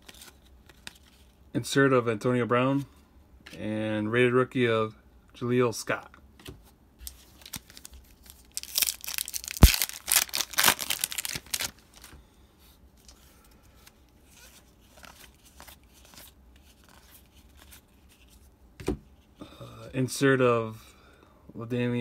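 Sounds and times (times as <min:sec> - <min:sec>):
cards rustling: 0:06.4 - 0:12.2, 0:13.0 - 0:18.5
foil wrapper tearing: 0:07.4 - 0:12.1.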